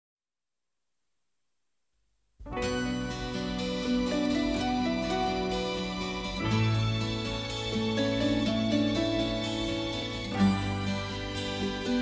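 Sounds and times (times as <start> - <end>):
instrumental background music: 2.4 - 12.0.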